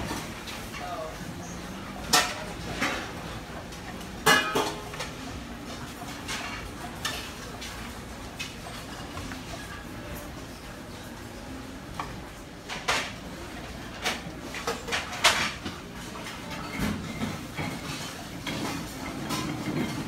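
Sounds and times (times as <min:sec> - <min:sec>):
metal tongs and pots clinking: 0:04.2 - 0:05.1.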